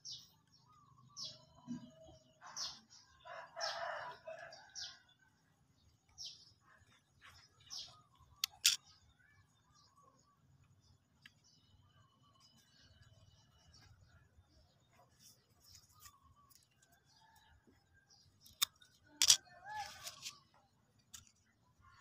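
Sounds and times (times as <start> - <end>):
birds chirping: 0.0 - 5.2, 5.8 - 22.0
sharp clicks: 8.4 - 8.8.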